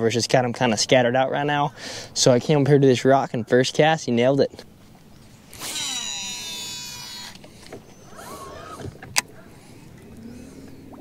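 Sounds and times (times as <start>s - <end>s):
low steady hum: 0.0s - 11.0s
fishing reel spool whirring: 5.4s - 9.0s.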